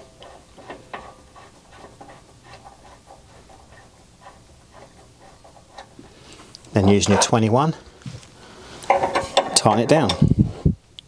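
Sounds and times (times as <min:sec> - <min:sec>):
light scraping of screw: 0:00.0 - 0:07.4.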